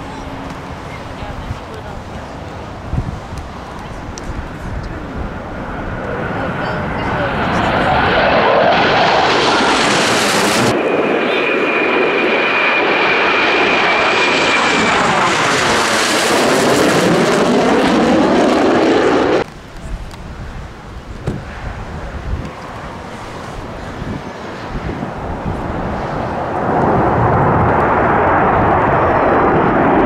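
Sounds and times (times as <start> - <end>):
wind buffeting microphone: 0.0 - 11.1, 16.6 - 30.0
jet roar passing overhead: 0.0 - 30.0.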